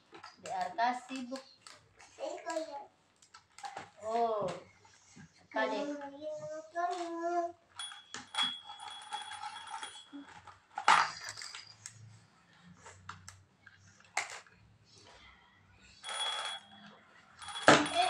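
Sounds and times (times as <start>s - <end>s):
plastic toys clicking and knocking: 0.0s - 4.7s, 6.8s - 12.1s, 12.8s - 15.2s, 16.0s - 18.0s
jingling rattle: 7.8s - 11.9s, 16.0s - 18.0s.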